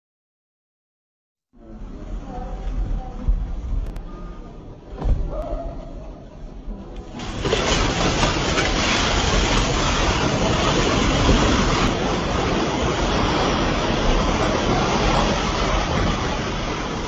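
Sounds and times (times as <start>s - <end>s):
rumble of falling masonry: 7.1s - 17.0s.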